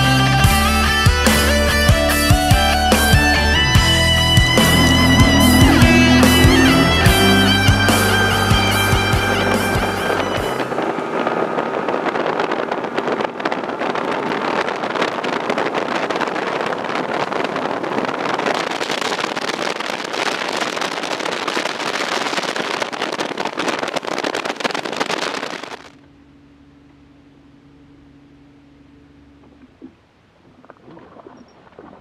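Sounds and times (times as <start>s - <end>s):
boat motor: 0.0s - 15.9s, 25.4s - 32.0s
hull on water: 0.0s - 32.0s
wind buffeting microphone: 2.4s - 25.8s.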